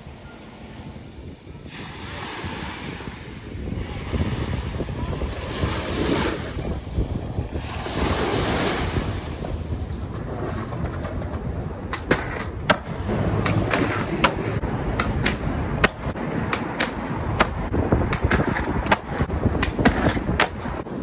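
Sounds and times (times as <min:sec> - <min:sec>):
wind on microphone: 0:00.0 - 0:21.0
small waves washing on beach: 0:01.6 - 0:09.8
skateboard wheels rolling on concrete: 0:03.0 - 0:21.0
skateboard clacks: 0:09.4 - 0:21.0.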